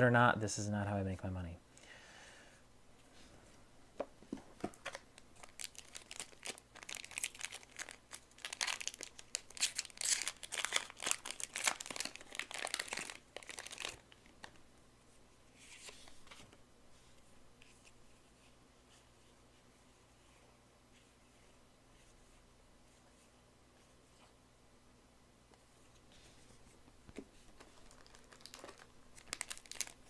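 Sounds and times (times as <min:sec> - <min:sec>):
wrapper crinkling and tearing: 0:04.8 - 0:14.6, 0:27.6 - 0:30.0.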